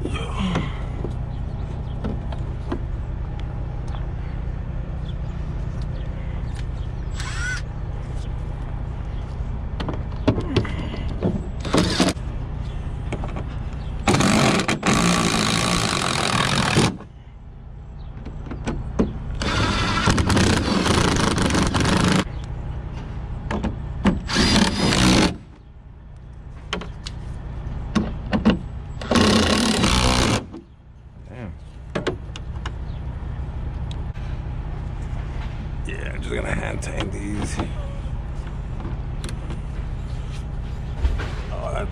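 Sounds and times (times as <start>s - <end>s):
steady low rumble: 0.0s - 14.2s, 30.7s - 41.9s
impact driver running bolts: 11.6s - 12.2s, 14.1s - 17.0s, 19.4s - 22.3s, 24.3s - 25.4s, 29.0s - 30.5s.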